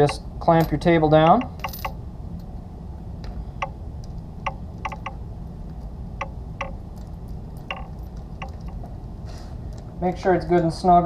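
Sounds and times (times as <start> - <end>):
light metallic clicks: 3.6 - 8.8.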